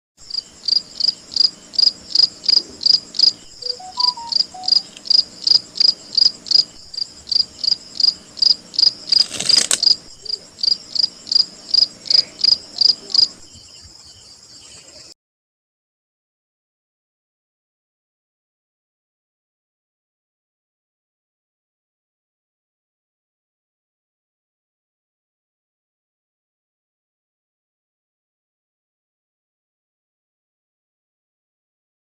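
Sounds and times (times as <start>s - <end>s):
steady high buzz: 0.2s - 9.2s
cicada chirping pulses: 0.2s - 14.5s.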